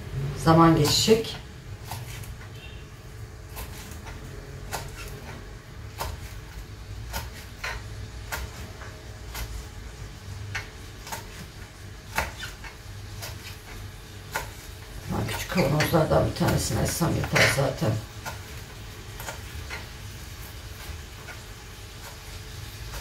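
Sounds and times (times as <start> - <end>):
knife tapping cutting board: 12.1 - 13.5.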